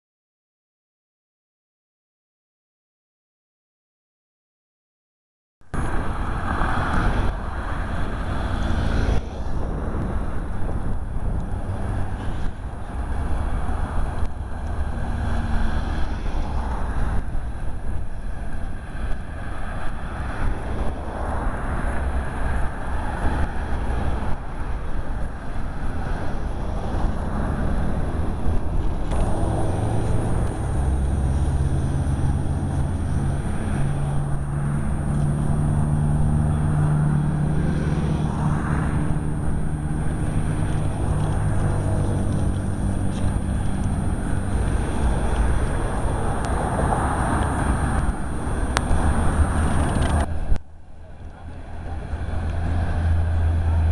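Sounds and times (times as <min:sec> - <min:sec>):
road traffic: 0:05.6 - 0:53.9
wind buffeting microphone: 0:05.8 - 0:50.6
vehicle engine running: 0:25.2 - 0:53.9.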